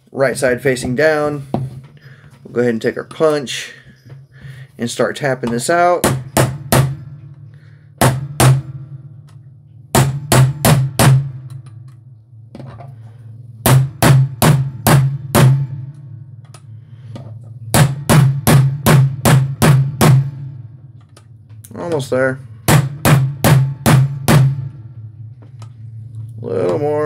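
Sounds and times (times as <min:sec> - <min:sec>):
hammer tapping a metal punch: 0:05.4 - 0:07.4, 0:08.0 - 0:12.0, 0:13.7 - 0:20.3.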